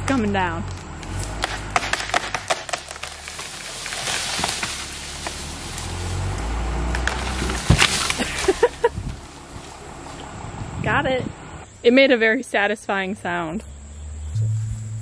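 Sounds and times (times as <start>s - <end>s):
wood snapping and knocking: 0.0s - 10.3s
leaves and branches rustling: 0.0s - 12.0s
limb hitting ground with thud: 0.7s - 9.2s
tree limb tearing: 0.7s - 10.3s.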